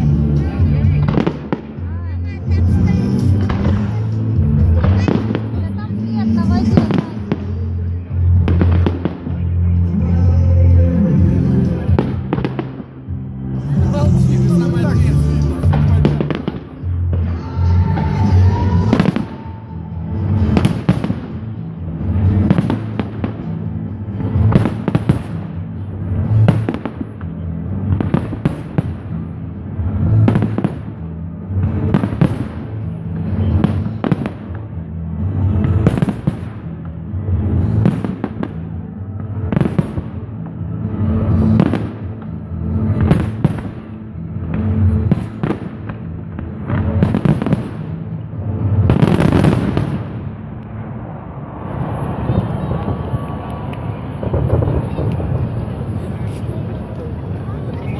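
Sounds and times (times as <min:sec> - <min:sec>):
fireworks bursting with bangs: 0:00.0 - 0:10.5, 0:11.4 - 0:57.9
fireworks crackle: 0:00.0 - 0:10.6, 0:11.3 - 0:57.9
loud music with steady bass: 0:00.0 - 0:26.7.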